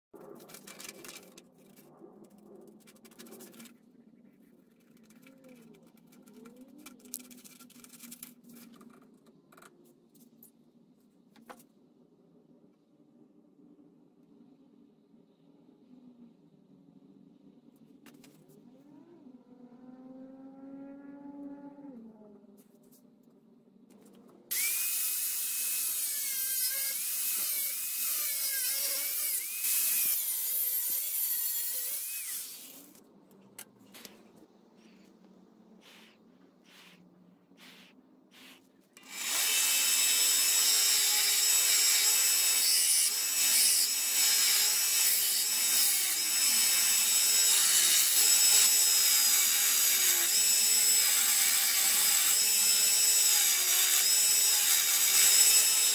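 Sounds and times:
paper scratching and rustling: 0:00.2 - 0:09.1
angle grinder cutting steel: 0:24.5 - 0:33.0, 0:37.7 - 0:55.9.

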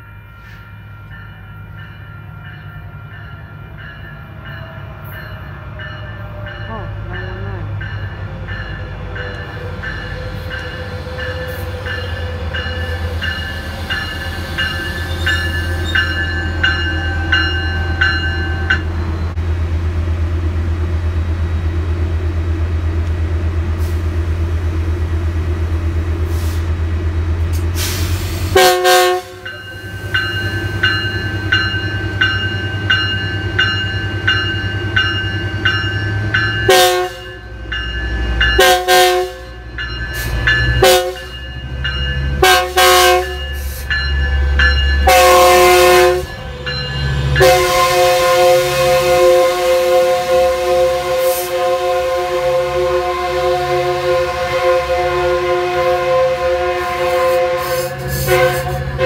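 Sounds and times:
train bell ringing: 0:00.0 - 0:19.4, 0:28.6 - 0:52.0, 0:55.3 - 0:59.0
diesel locomotive engine humming: 0:00.0 - 0:59.0
train horn blast: 0:27.8 - 0:29.5, 0:36.7 - 0:37.4, 0:38.6 - 0:39.6, 0:40.8 - 0:41.3, 0:42.4 - 0:43.4, 0:45.0 - 0:59.0.

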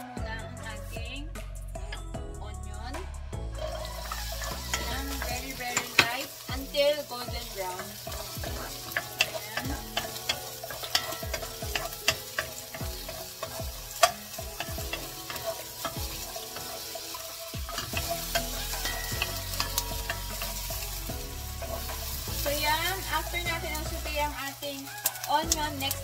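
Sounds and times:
onions sizzling in oil: 0:03.5 - 0:26.0
spatula tapping and scraping pan: 0:03.7 - 0:24.1.

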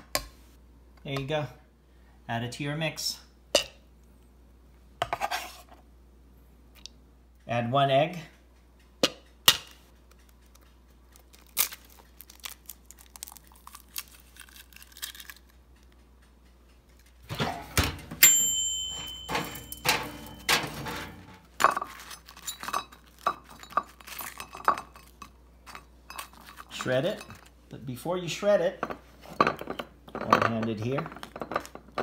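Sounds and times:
utensils and dishes clattering: 0:17.2 - 0:27.5, 0:28.8 - 0:32.0
struck bowl ringing: 0:17.8 - 0:21.4.

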